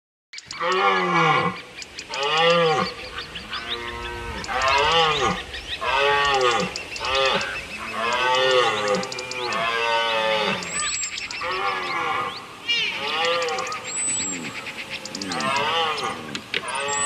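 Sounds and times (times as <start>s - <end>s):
deer bleating calls: 0.5s - 17.0s
faint clicks: 6.2s - 9.7s.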